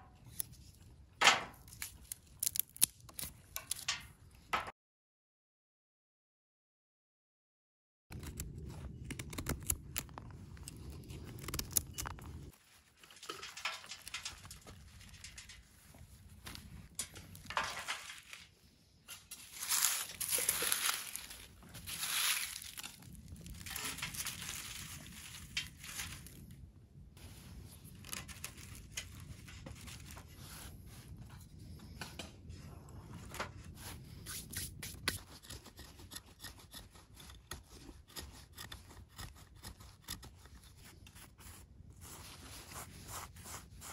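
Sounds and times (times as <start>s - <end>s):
rustling and crinkling: 8.2s - 35.0s
knife shaving dry wood: 33.9s - 43.9s.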